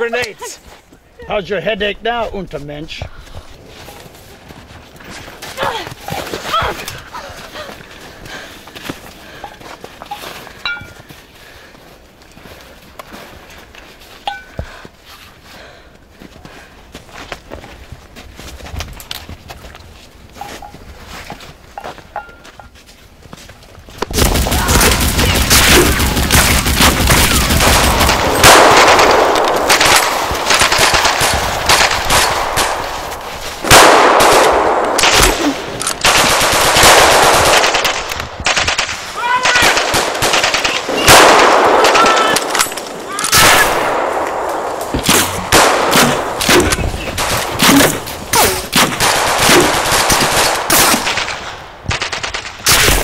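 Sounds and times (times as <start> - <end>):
rifle shots: 24.1 - 53.0.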